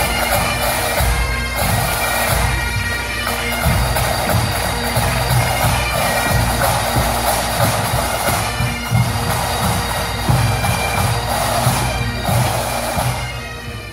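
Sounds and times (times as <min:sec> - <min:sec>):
bagpipes playing over drones: 0:00.0 - 0:13.9
bass and snare drums beating: 0:03.6 - 0:13.2.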